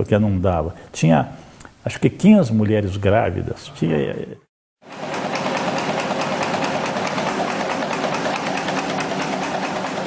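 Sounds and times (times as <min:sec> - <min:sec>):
machine whirring and ticking: 0:04.8 - 0:10.0.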